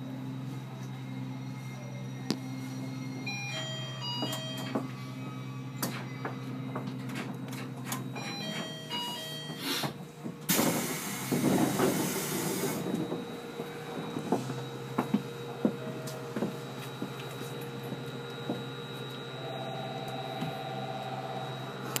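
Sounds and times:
air brake hiss: 9.6 - 12.8
electrical hum with high whine: 12.5 - 22.0.

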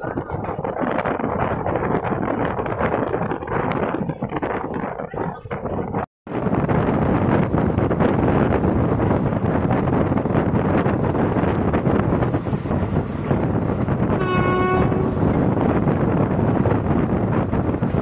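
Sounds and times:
train running rumble and wind: 0.0 - 18.0
locomotive horn: 14.1 - 15.4.

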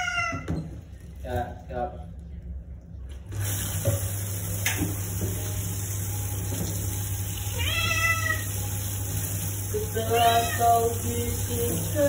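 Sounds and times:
cat meowing: 0.0 - 0.5, 7.5 - 8.5, 10.1 - 10.9
shower head spraying water: 3.3 - 12.0.

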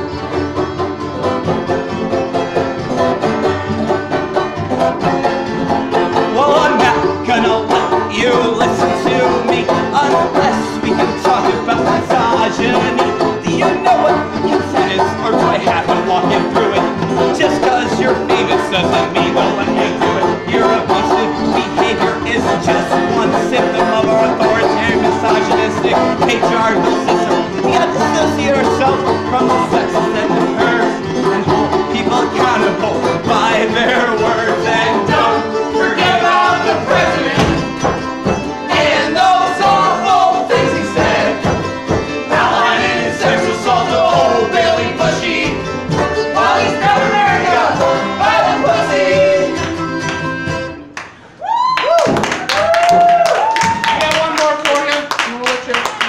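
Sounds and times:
banjo: 0.0 - 51.0
strummed acoustic guitar: 0.0 - 51.0
string band playing bluegrass: 0.0 - 51.4
man singing: 6.2 - 37.7.

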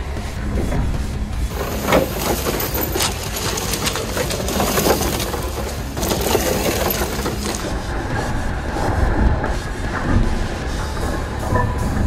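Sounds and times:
toy truck motor running: 1.5 - 8.3
tyres making rough crackling noise: 1.5 - 11.4.

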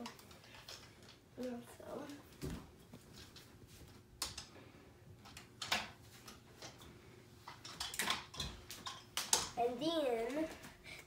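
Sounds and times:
plastic toys clicking and knocking: 0.0 - 1.6, 4.2 - 4.6, 5.2 - 9.6.

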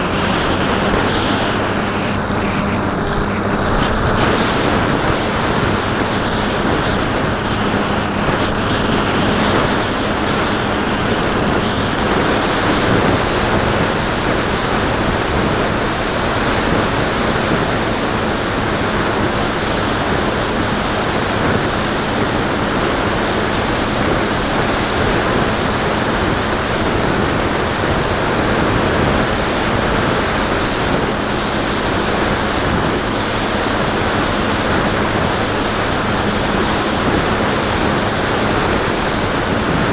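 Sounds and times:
electric motor hum: 0.0 - 20.8
wind rushing over camera: 0.0 - 39.9.

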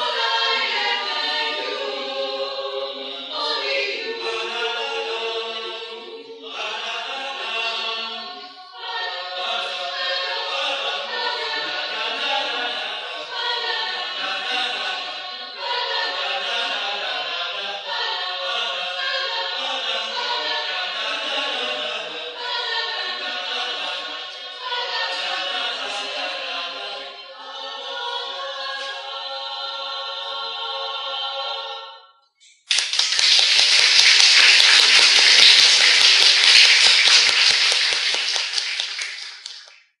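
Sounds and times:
choir singing a cappella: 0.0 - 32.2, 33.6 - 39.6
audience applause: 32.7 - 39.7.

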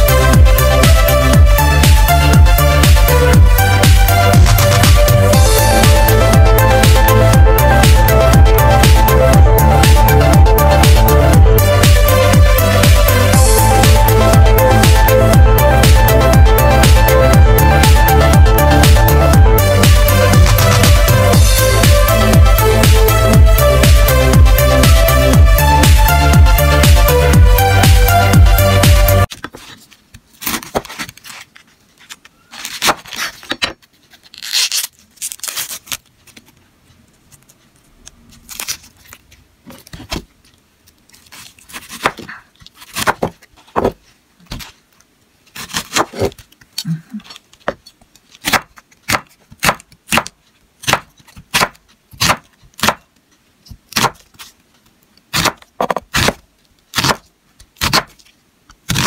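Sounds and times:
onion skin crackling: 29.3 - 43.6, 44.4 - 53.1, 55.3 - 59.0.

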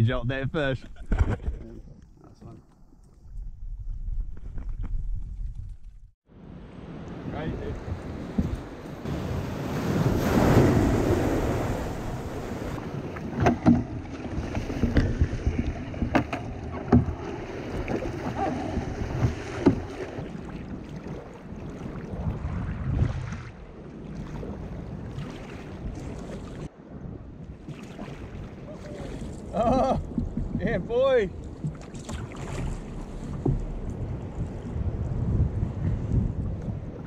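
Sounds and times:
wind buffeting microphone: 6.8 - 37.0
water slapping around kayak: 7.2 - 37.0
sharp splashes or knocks: 13.0 - 23.6, 31.4 - 34.6.

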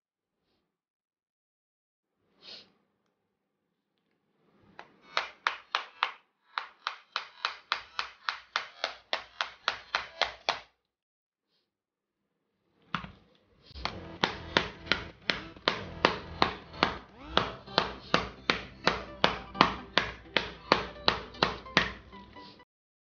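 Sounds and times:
sharp taps: 5.2 - 10.6, 13.8 - 22.2
mallet knocking plastic case: 13.8 - 22.1.

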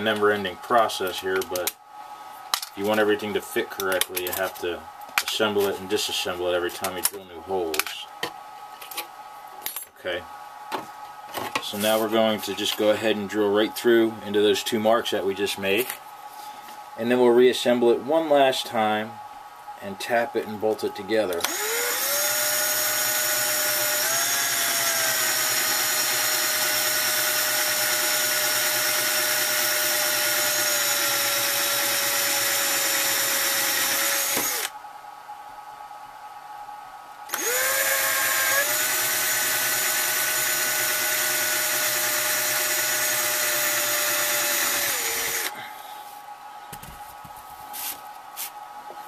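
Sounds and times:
cordless drill drilling plastic: 21.4 - 34.7, 37.3 - 45.6.

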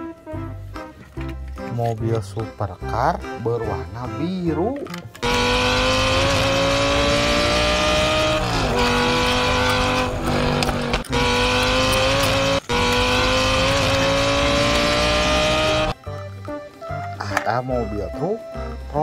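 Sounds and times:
supercar engine revving: 5.2 - 16.0.

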